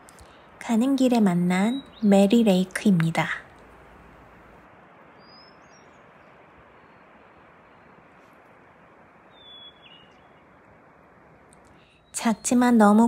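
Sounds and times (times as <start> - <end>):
soft outdoor hiss: 0.0 - 13.0
high whistled bird calls: 5.2 - 6.0, 9.3 - 10.5.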